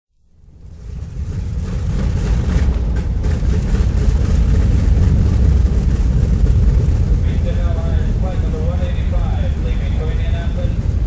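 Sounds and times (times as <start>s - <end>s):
airplane engines rumbling: 0.2s - 11.0s.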